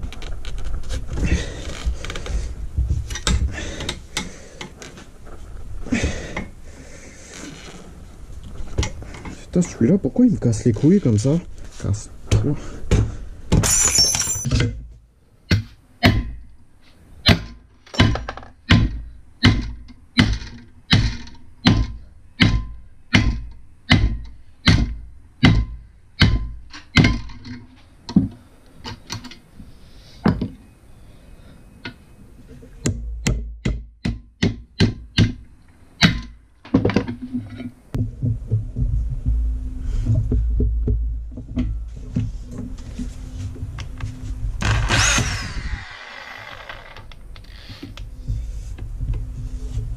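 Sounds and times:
low steady rumble: 37.8 - 49.9.

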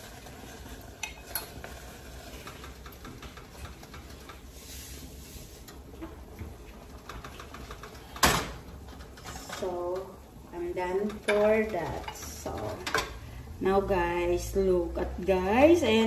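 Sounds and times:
low steady background noise: 0.0 - 16.0
utensils clinking on cookware: 1.0 - 1.6, 10.7 - 13.3.

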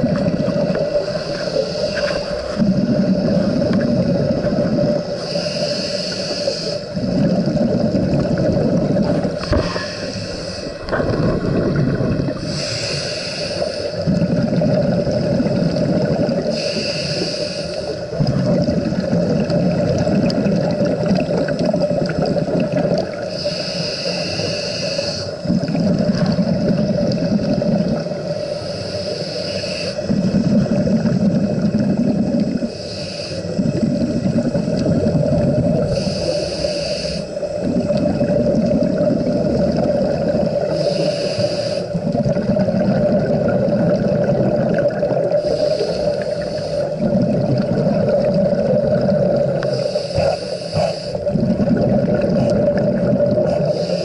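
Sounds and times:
exhaled bubbles rumbling: 0.0 - 28.7, 30.0 - 54.0
regulator hissing inhale: 0.6 - 7.1, 9.2 - 10.9, 11.7 - 14.3, 16.4 - 18.2, 23.1 - 25.8, 28.0 - 30.8, 32.4 - 35.0, 35.7 - 38.1, 40.6 - 42.2, 45.2 - 47.2, 49.5 - 51.4, 53.4 - 54.0.

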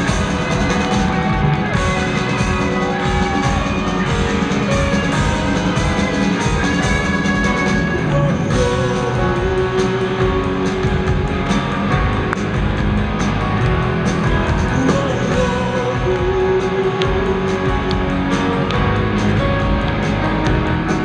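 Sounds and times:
live rock band: 0.0 - 21.0
man singing into microphone: 8.0 - 11.3, 14.6 - 18.2.

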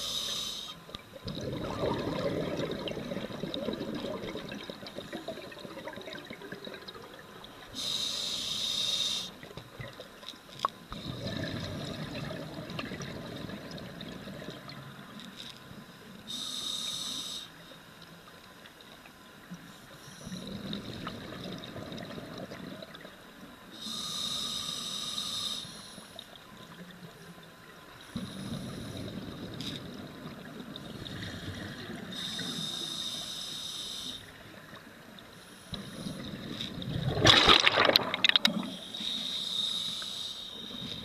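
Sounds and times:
scuba regulator breathing: 0.0 - 0.8, 7.8 - 9.4, 16.3 - 17.6, 23.8 - 26.2, 31.2 - 34.4, 38.6 - 41.0
bubbling rumble: 1.2 - 7.6, 11.0 - 14.8, 20.4 - 23.0, 36.2 - 38.6.

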